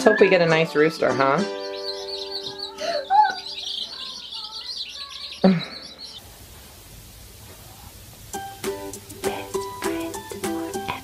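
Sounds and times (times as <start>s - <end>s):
baby chicks peeping: 0.0s - 6.3s
faint hiss: 4.0s - 11.0s.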